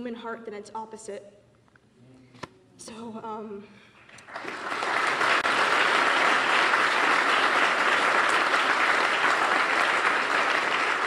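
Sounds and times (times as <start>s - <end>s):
audience applauding: 4.0s - 11.0s.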